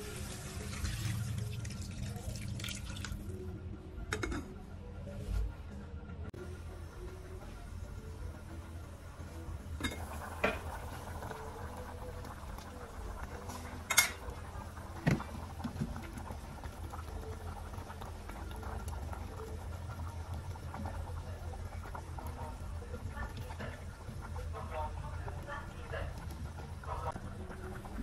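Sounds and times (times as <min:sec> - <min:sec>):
broth bubbling in a pot: 0:00.0 - 0:04.2, 0:06.3 - 0:28.0
metal pot and lid clinks: 0:04.1 - 0:04.5, 0:09.8 - 0:10.7, 0:13.8 - 0:14.3.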